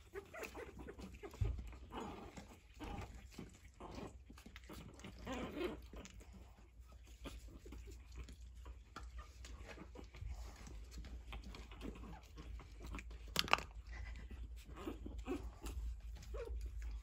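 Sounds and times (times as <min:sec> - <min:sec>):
soft puppy noises: 0:00.0 - 0:17.0
small clicks on wooden floor: 0:13.3 - 0:13.8.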